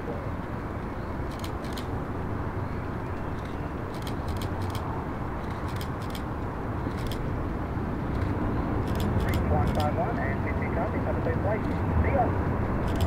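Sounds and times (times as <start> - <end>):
jet engine rumble: 0.0 - 13.0.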